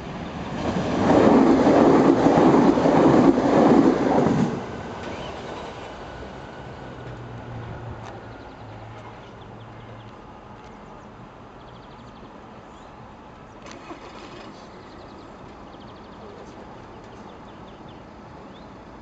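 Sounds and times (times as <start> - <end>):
train wheels rumbling on rail: 0.0 - 8.2.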